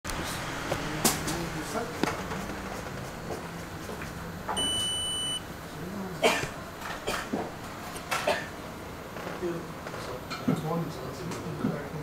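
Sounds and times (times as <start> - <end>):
electronic beep: 4.6 - 5.4.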